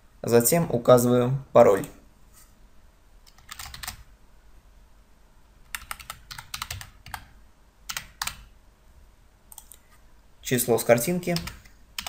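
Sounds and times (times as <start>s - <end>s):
keyboard typing: 3.3s - 4.1s, 5.7s - 8.5s, 9.5s - 9.8s, 11.3s - 12.0s.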